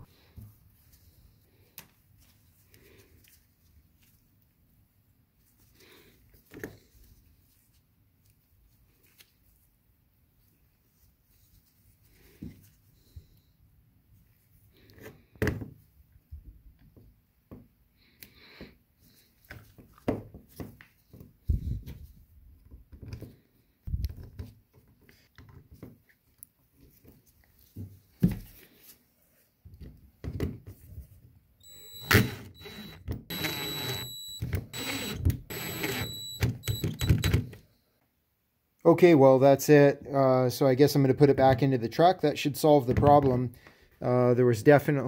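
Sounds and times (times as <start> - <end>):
cordless drill whining: 31.6 - 37.6.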